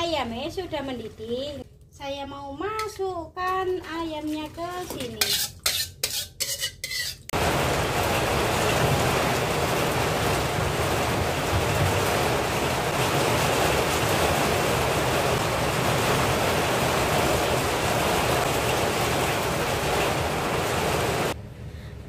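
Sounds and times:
heavy rain pouring: 7.4s - 21.4s.

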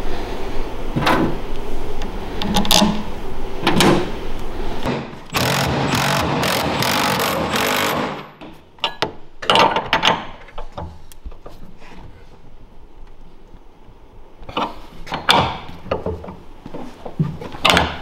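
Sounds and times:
impact driver hammering: 4.9s - 8.4s
wrench clicking and scraping: 5.3s - 8.2s.

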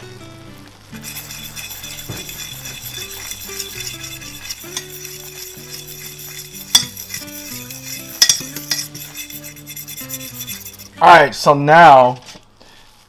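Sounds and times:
roux sizzling: 0.0s - 11.3s
fork clinking against pan: 1.0s - 11.0s
fork scraping saucepan: 1.0s - 11.0s.

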